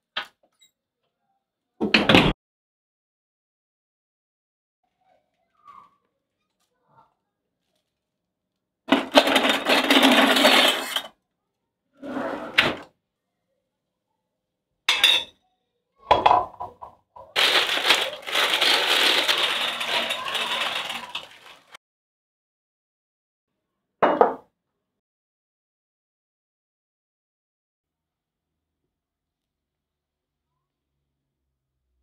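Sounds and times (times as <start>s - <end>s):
plastic bags crinkling: 17.4s - 21.8s.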